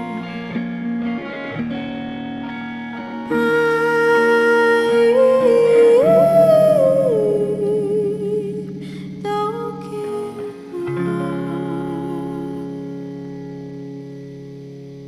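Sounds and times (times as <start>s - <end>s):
woman singing long notes: 0.0s - 0.6s, 3.3s - 13.0s
electric guitar chords: 0.0s - 15.0s.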